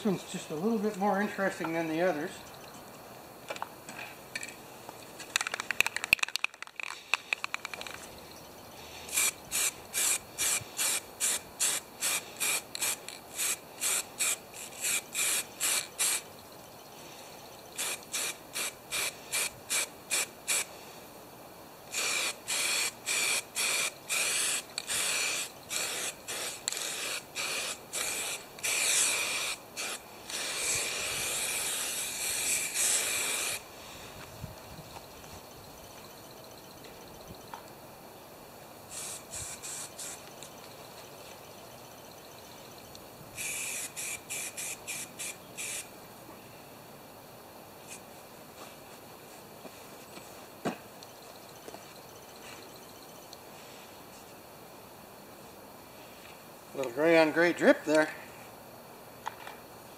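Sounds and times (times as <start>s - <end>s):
spray can rattling: 5.2s - 8.0s, 9.1s - 16.2s, 17.8s - 20.7s, 21.9s - 33.6s, 38.9s - 40.2s, 43.4s - 45.8s
spray paint hissing: 9.0s - 16.3s, 17.8s - 20.7s, 21.9s - 33.7s, 38.9s - 40.5s, 43.4s - 45.9s.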